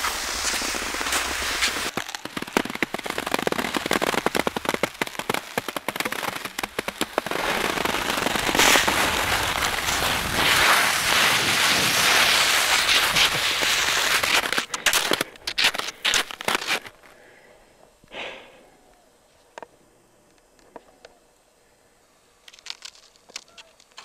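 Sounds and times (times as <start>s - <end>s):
skis crunching on snow: 0.0s - 17.2s.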